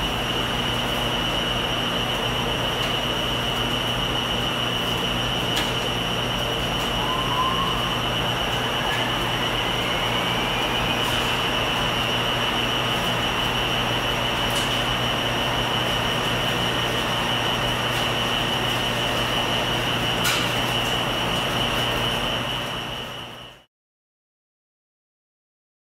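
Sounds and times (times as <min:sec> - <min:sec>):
high whine: 0:06.2 - 0:14.6.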